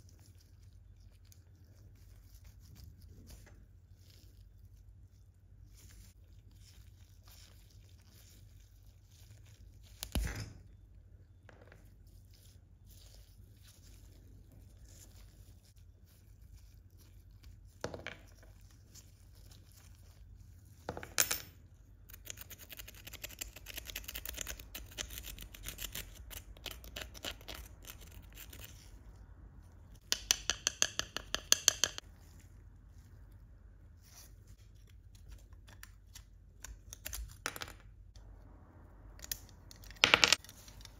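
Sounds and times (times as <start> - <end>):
hand tools ticking and knocking: 30.0 - 32.0.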